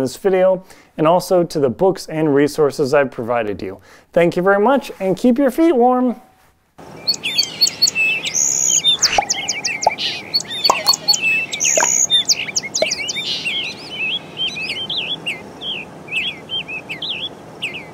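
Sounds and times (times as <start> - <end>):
small birds chirping: 6.9 - 17.9
sharp clicks: 10.7 - 12.1.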